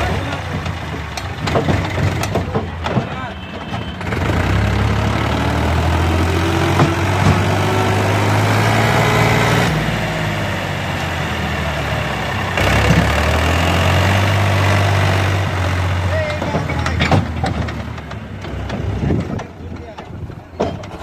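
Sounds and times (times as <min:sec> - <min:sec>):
tractor engine droning: 0:00.0 - 0:21.0.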